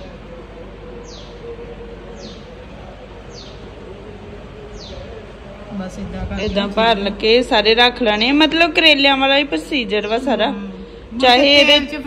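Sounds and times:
faint steady hum: 0.0 - 12.0
bird chirping: 0.8 - 5.3.

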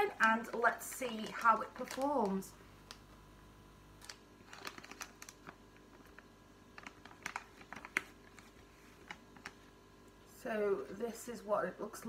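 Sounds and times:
packet tearing and crinkling: 0.0 - 3.0, 4.0 - 9.6.

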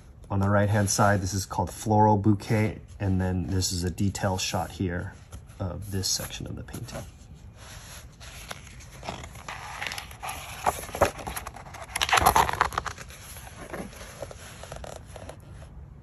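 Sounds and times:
book page turning: 5.0 - 15.8.

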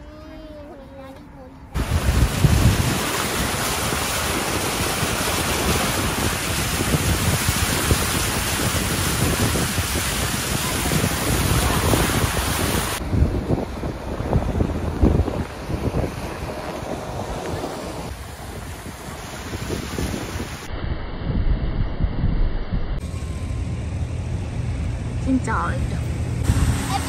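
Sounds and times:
hiss of traffic and water: 1.8 - 20.7, 26.4 - 27.0
wind buffeting microphone: 1.8 - 24.8
low gusty rumbles: 1.8 - 26.9.

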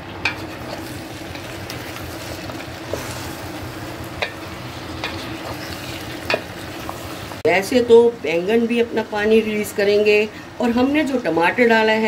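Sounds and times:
vegetables sizzling in hot oil: 0.0 - 7.5.

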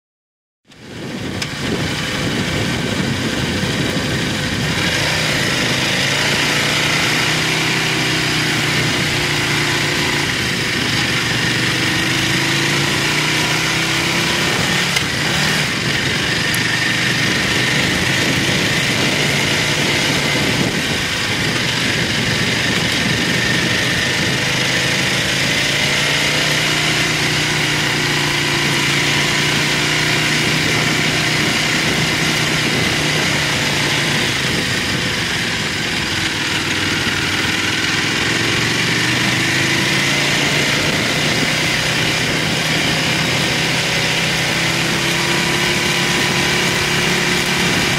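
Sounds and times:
wind and road noise: 0.6 - 47.9
motorcycle engine revving: 0.7 - 47.9.

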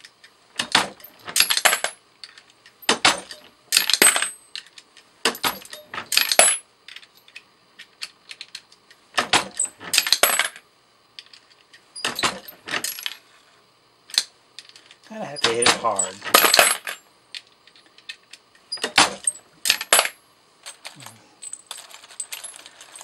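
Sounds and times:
brass cases clinking: 15.4 - 17.0, 18.8 - 23.0.

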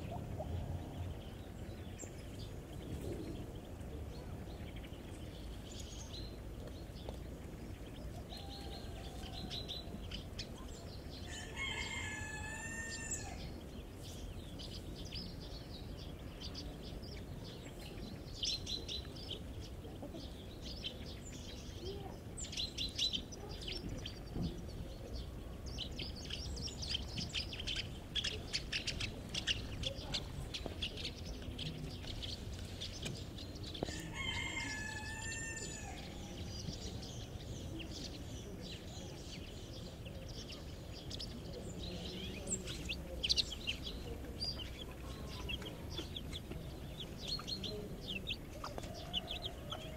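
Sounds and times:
chicks peeping: 0.0 - 49.9
rooster crowing: 11.3 - 13.5, 33.9 - 36.3, 48.6 - 49.9.

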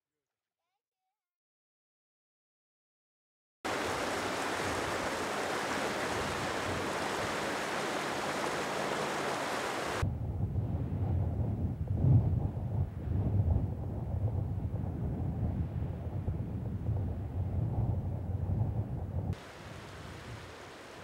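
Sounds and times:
even rushing hiss: 3.7 - 10.0, 19.4 - 21.0
wind rumble on microphone: 3.7 - 21.0.

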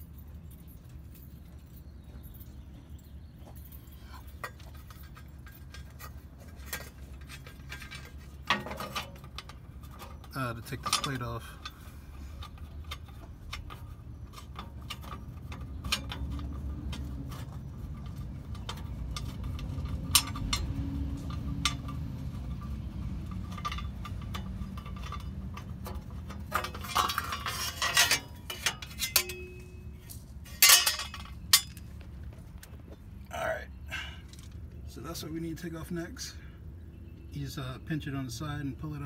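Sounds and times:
low steady rumble: 0.0 - 39.0
sheet metal clanking: 12.4 - 31.8.

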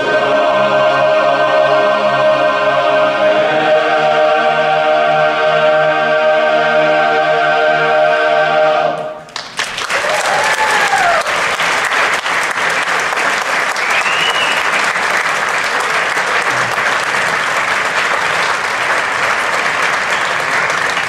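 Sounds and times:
audience applauding: 9.3 - 21.0.

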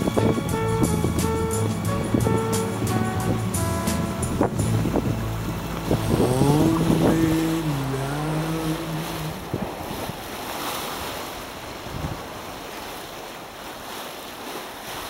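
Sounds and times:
held musical note: 0.0 - 9.4
wind on microphone: 0.0 - 13.2
sea waves: 0.0 - 15.0.

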